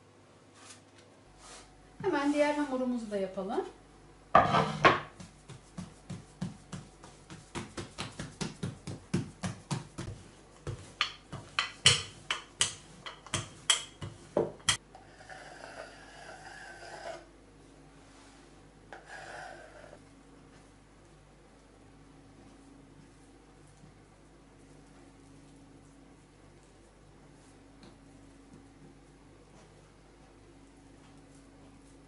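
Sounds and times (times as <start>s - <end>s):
dough knocking on table: 4.4s - 14.8s
rolling pin rolling dough: 4.4s - 17.3s
knife scraping through dough: 14.7s - 17.3s, 18.9s - 20.0s.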